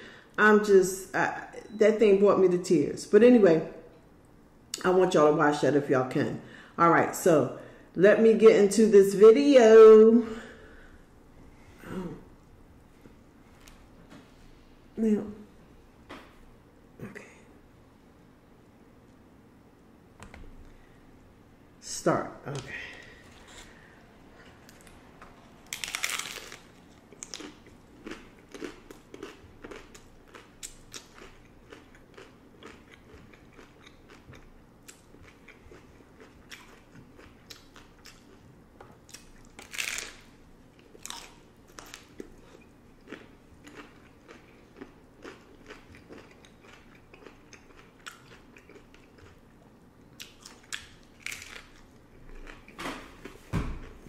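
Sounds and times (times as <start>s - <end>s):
quiet chewing: 23.0s - 39.6s, 40.8s - 53.4s
crisp taco shells crunching: 24.6s - 38.4s, 39.0s - 49.4s, 50.2s - 52.7s.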